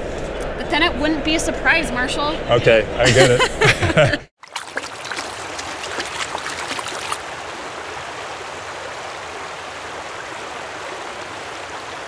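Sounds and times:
splashing droplets: 4.4 - 7.2
stream water flowing: 4.4 - 12.0.

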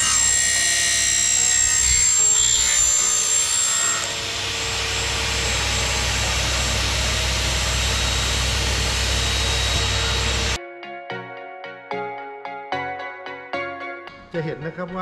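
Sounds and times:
saw blade cutting aluminium: 0.0 - 10.6.

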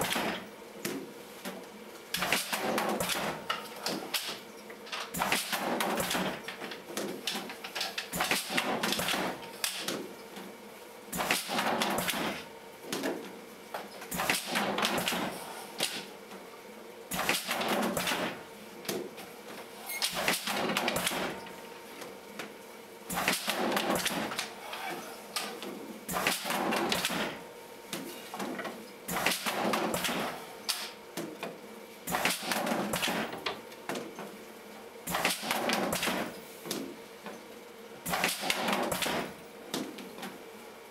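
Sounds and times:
machine mechanical clatter: 0.0 - 1.0, 2.1 - 10.0, 11.1 - 16.1, 17.1 - 21.6, 23.1 - 24.5, 25.3 - 27.4, 28.3 - 34.4, 35.1 - 36.9, 38.0 - 40.4.

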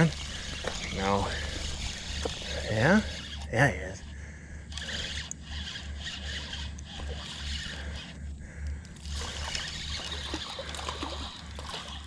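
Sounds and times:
water splashing: 9.2 - 12.0.

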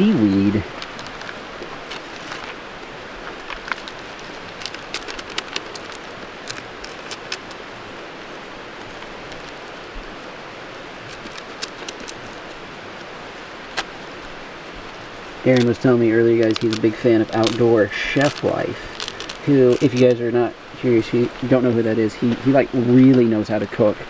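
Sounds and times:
seaweed sheet crackling: 0.0 - 23.1
steady background hiss: 0.0 - 24.0
plastic bag crinkling: 0.8 - 2.6, 3.2 - 8.0, 8.8 - 9.8, 11.0 - 12.6, 13.2 - 20.2.

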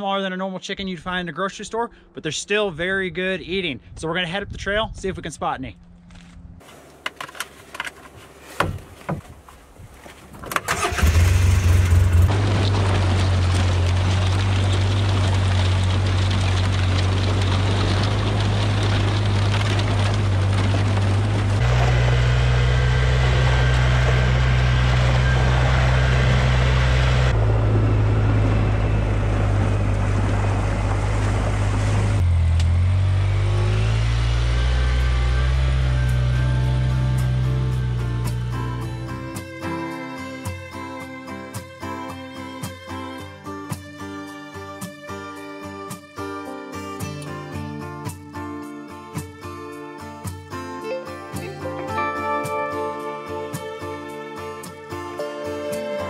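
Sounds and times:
utility vehicle engine running: 10.5 - 39.6
water splashing: 10.6 - 22.0.

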